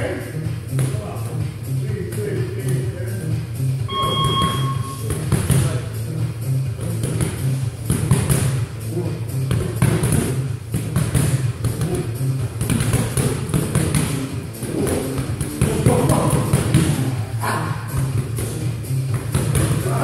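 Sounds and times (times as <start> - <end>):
background music with bass line: 0.0 - 20.0
gloved punches thudding: 12.6 - 17.0.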